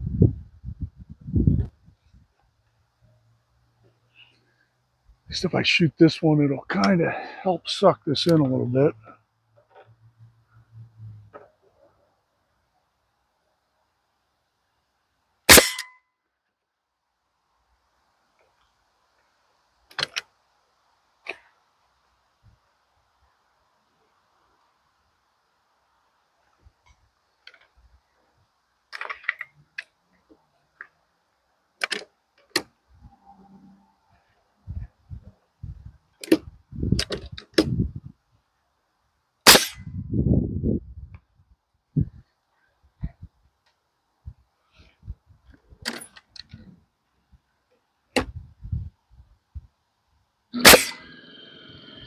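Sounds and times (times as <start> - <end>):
nail gun shots into lumber: 39.5 - 39.8, 50.6 - 51.0.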